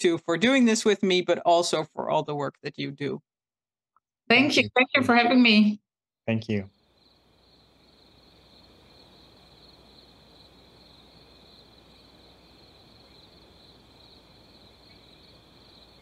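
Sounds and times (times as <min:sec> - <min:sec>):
faint background noise: 0:04.3 - 0:05.7.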